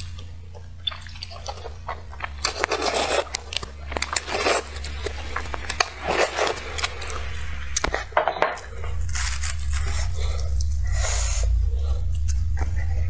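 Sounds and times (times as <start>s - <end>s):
wet chewing: 0.0s - 13.0s
slurping noodles: 0.8s - 8.1s.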